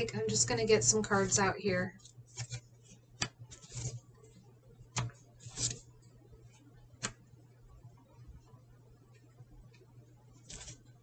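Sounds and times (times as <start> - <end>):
card sliding: 2.3 - 2.6, 3.2 - 4.0, 5.0 - 5.8, 10.5 - 10.8
cards clicking on table: 2.4 - 2.6.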